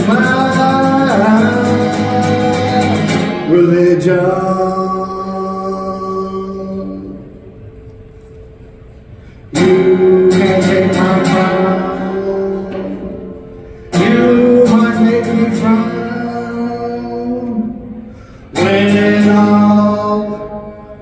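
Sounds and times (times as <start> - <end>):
guitar chords strummed: 0.0 - 4.8, 9.5 - 21.0.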